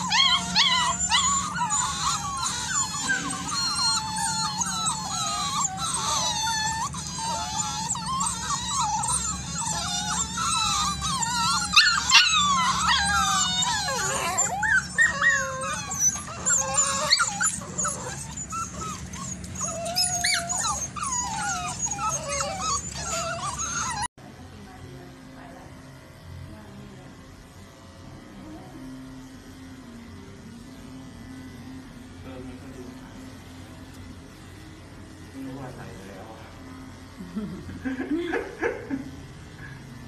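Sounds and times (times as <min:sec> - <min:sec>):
puppies howling and whining: 0:00.0 - 0:24.2.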